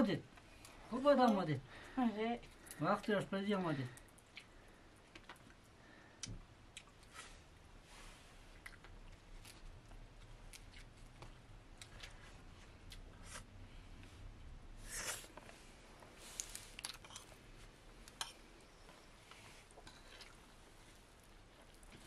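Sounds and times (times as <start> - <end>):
people eating with hands: 0.0 - 22.0
chewing: 4.0 - 5.6, 16.3 - 17.4, 19.7 - 22.0.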